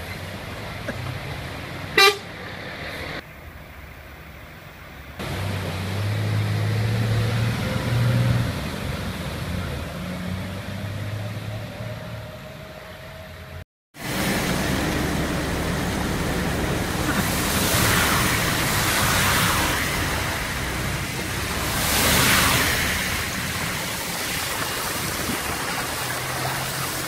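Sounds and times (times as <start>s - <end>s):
truck engine rumbling: 0.0s - 27.0s
vehicle horn toot: 2.0s - 2.3s
water hiss: 14.0s - 27.0s.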